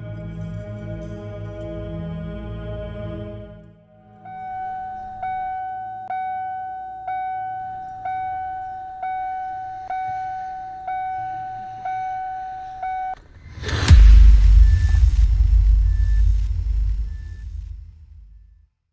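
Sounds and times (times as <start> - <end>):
car warning chime dinging: 4.0 - 13.2.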